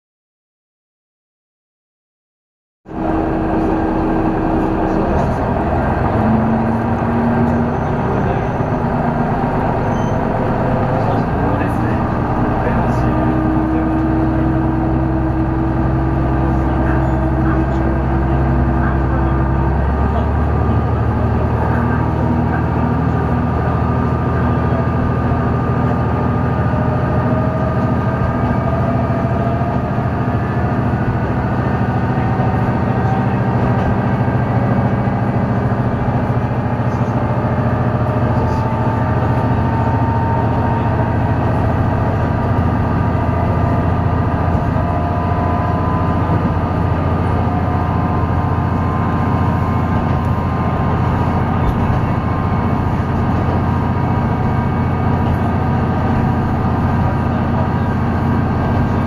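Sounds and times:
rising whines: 2.9 - 18.5
railcar engine drone: 2.9 - 59.0.

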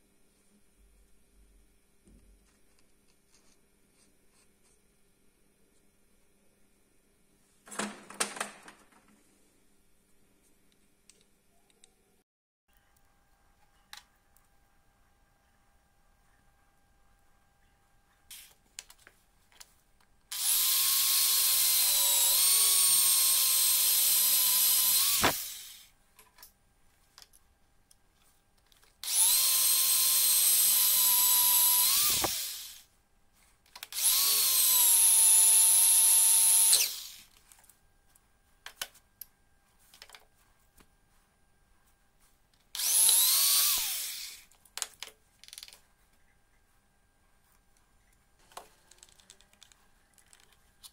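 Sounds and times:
electric drill whining into metal: 20.3 - 25.9, 29.0 - 32.9, 33.9 - 37.3, 42.8 - 44.5.

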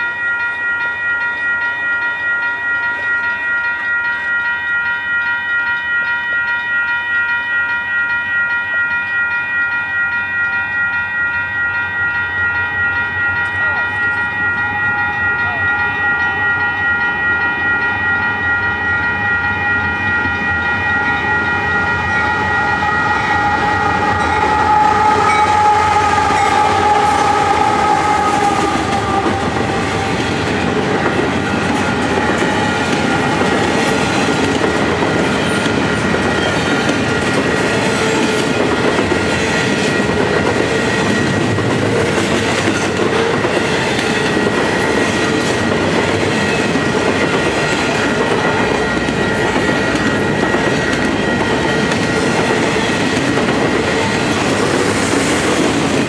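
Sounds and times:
locomotive horn: 21.2 - 33.9.

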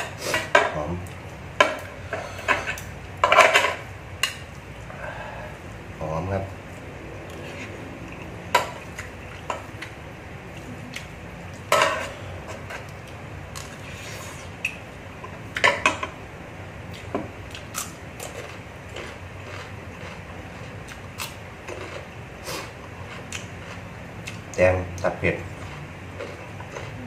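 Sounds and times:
eating noises: 16.9 - 27.0.

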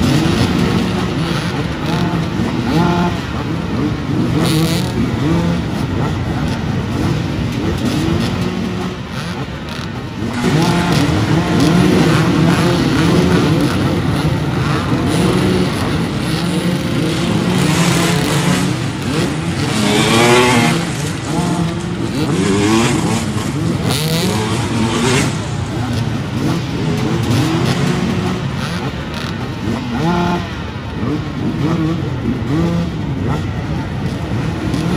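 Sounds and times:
dirt bike engines revving: 0.0 - 34.9.

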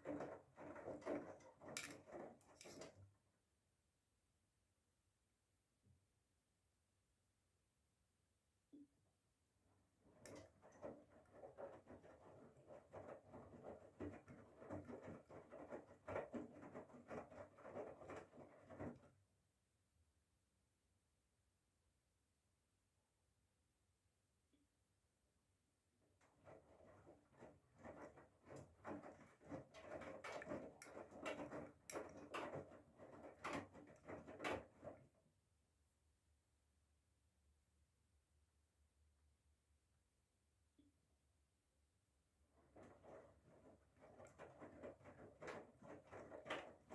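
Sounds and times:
laundry sloshing in washing machine: 0.0 - 3.0, 10.0 - 19.2, 26.2 - 35.2, 42.5 - 46.9.

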